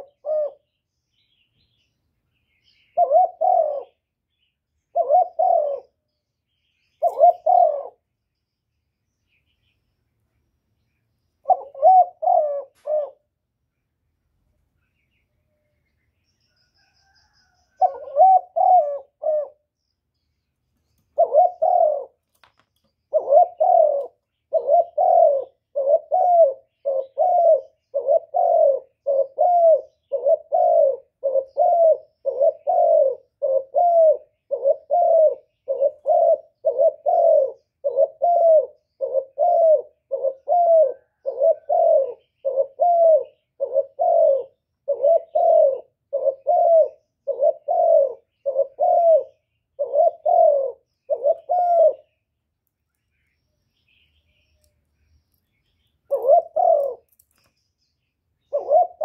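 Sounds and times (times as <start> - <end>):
dove cooing: 0.0 - 0.8, 2.7 - 4.2, 4.8 - 6.1, 7.0 - 8.1, 11.4 - 13.4, 16.7 - 19.7, 21.2 - 22.5, 23.1 - 52.2, 56.1 - 57.2, 58.4 - 59.0.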